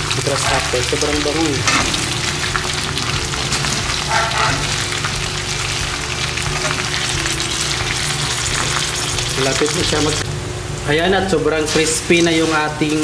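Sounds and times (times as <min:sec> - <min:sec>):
oil sizzling: 0:00.0 - 0:10.9, 0:11.5 - 0:13.0
metal ladle stirring: 0:01.5 - 0:05.8.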